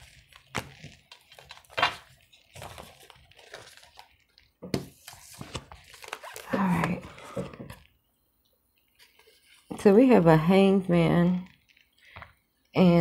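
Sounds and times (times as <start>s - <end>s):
cards rustling: 0.0s - 7.9s.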